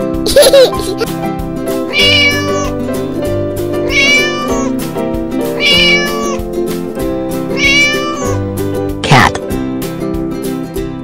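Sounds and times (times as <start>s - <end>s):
background music: 0.0s - 11.0s
cat meowing: 1.9s - 2.7s, 3.8s - 4.8s, 5.6s - 6.4s, 7.6s - 8.4s.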